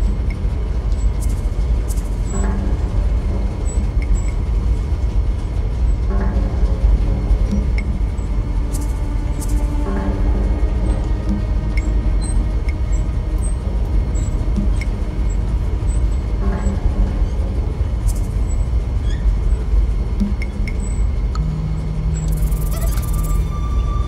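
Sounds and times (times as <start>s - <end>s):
boat engine rumbling: 0.0s - 24.0s
faint metallic ticks and pings: 20.2s - 23.4s.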